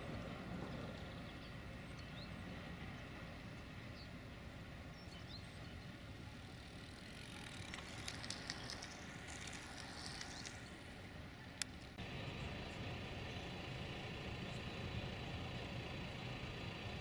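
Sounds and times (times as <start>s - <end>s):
faint high crackling: 6.5s - 12.0s
distant freight train rumble: 12.0s - 17.0s.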